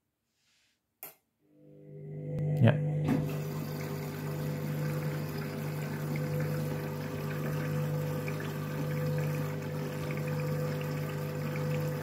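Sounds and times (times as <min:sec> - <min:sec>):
steady machine hum: 0:01.5 - 0:12.0
water rushing into washing machine: 0:03.0 - 0:12.0.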